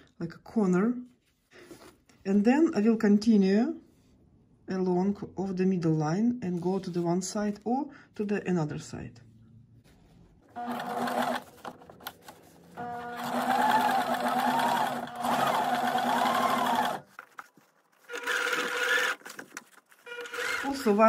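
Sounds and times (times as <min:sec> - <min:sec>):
sewing machine running: 0:10.5 - 0:17.0, 0:18.1 - 0:19.2, 0:20.0 - 0:21.0.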